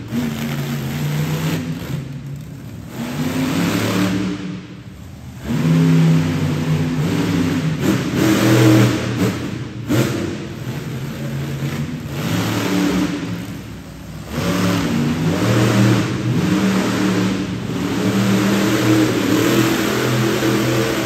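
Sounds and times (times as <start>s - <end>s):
truck engine revving: 0.0s - 21.0s.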